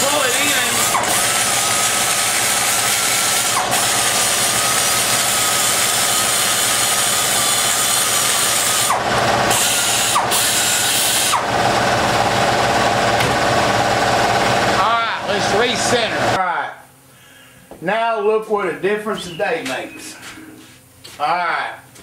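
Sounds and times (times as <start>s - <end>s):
die grinder whine: 0.0s - 16.4s.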